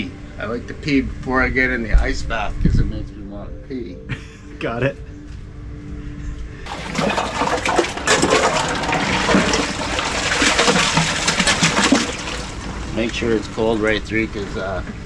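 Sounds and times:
water splashing and pouring: 6.7 - 13.8.

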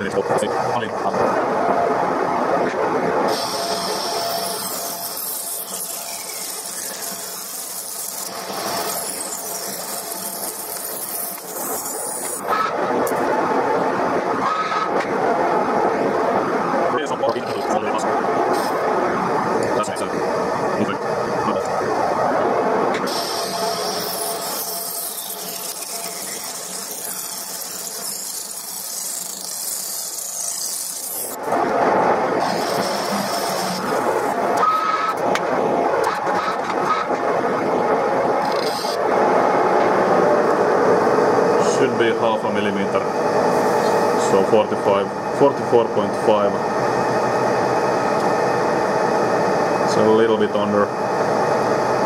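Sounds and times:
lathe running: 1.3 - 14.2, 17.4 - 52.0
lathe cutting steel: 3.3 - 12.8, 23.0 - 35.2
hissing scrape of metal cutting: 32.4 - 34.3.

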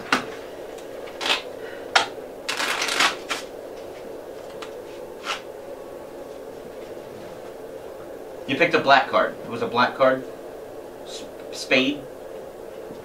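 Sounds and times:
playing cards shuffled by hand: 2.5 - 3.5.

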